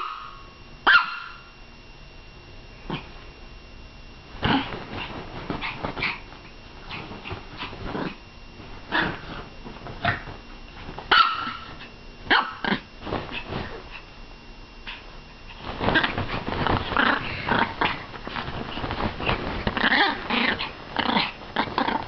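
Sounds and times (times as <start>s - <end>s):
small dog barking and growling: 0.0s - 1.5s, 2.9s - 3.1s, 4.4s - 8.2s, 8.9s - 14.0s, 15.8s - 22.0s.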